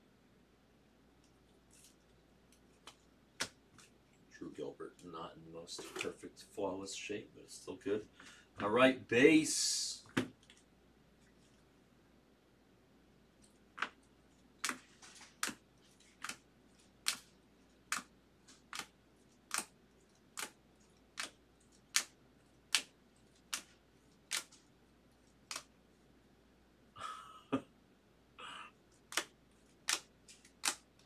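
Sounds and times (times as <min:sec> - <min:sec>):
cards clicking as flipped: 0:14.6 - 0:16.4, 0:17.9 - 0:18.9, 0:19.5 - 0:19.7, 0:20.4 - 0:20.6, 0:21.2 - 0:22.1, 0:24.3 - 0:24.6, 0:25.5 - 0:25.7, 0:29.0 - 0:31.0.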